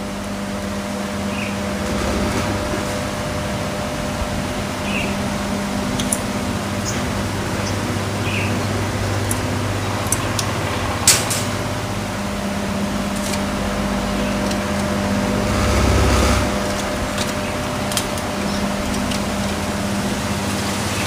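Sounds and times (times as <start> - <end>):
low mechanical hum: 0.0 - 21.0
low rumble: 1.5 - 5.3.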